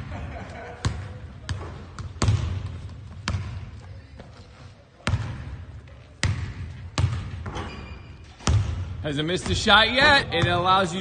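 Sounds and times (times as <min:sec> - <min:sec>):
basketball bouncing on wooden floor: 0:00.8 - 0:03.7, 0:06.2 - 0:07.8.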